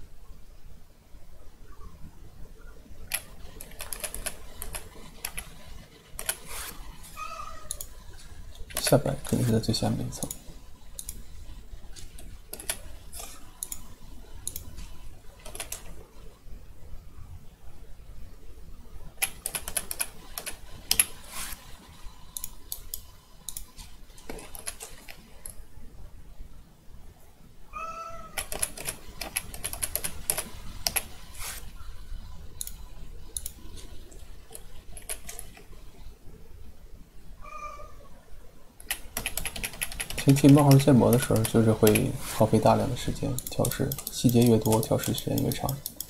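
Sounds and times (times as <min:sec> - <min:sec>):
keyboard and mouse clicking: 0:03.1 - 0:06.8, 0:07.6 - 0:09.5, 0:10.1 - 0:11.3, 0:12.0 - 0:16.0, 0:19.2 - 0:21.7, 0:22.3 - 0:25.6, 0:28.4 - 0:31.3, 0:32.6 - 0:35.7, 0:38.8 - 0:46.0.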